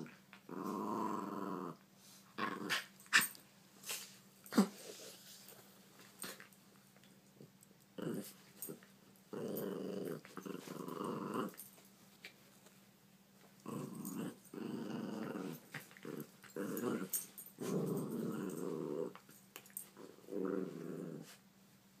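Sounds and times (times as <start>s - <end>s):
puppies growling: 0.0s - 1.8s, 8.0s - 11.7s, 13.6s - 19.2s, 20.0s - 21.4s.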